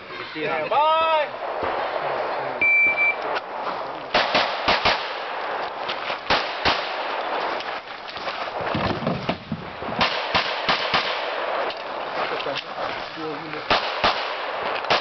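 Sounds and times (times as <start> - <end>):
shot timer start beep: 2.6 - 3.2
pistol shots: 4.1 - 7.7, 9.9 - 11.9, 13.7 - 15.0.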